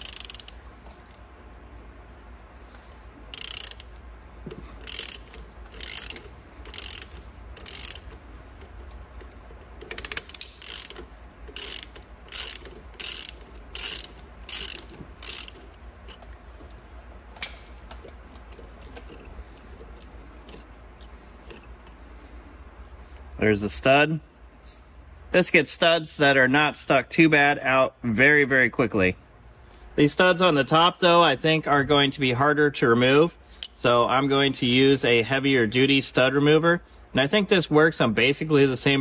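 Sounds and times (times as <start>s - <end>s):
socket ratchet clicking: 0.0s - 0.6s, 3.3s - 4.0s, 4.8s - 8.3s, 9.2s - 15.8s.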